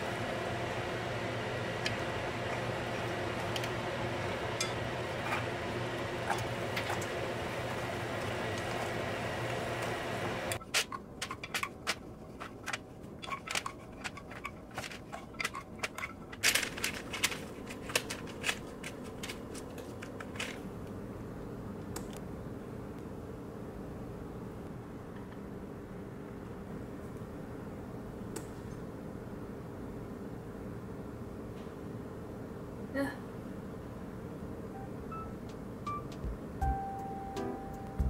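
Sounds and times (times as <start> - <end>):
water boiling in pot: 0.0 - 19.9
chopsticks scraping a pot: 4.5 - 7.1, 10.6 - 18.1
kitchen containers handled: 10.6 - 20.6.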